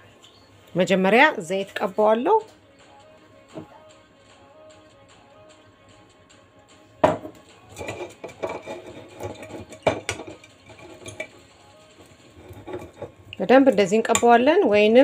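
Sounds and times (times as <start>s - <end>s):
metal pan knocking and clattering: 7.0s - 11.4s, 12.4s - 13.2s.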